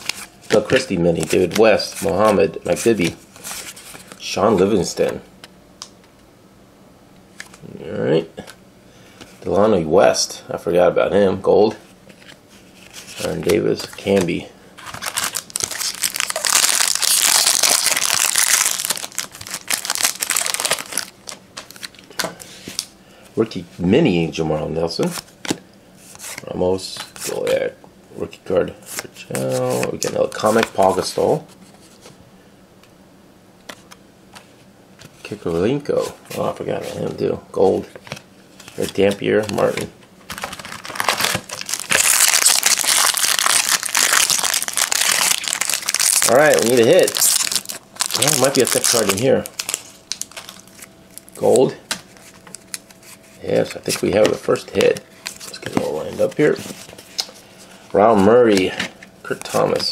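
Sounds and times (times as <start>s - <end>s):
foil wrapper crinkling: 13.1s - 22.2s, 38.7s - 57.4s.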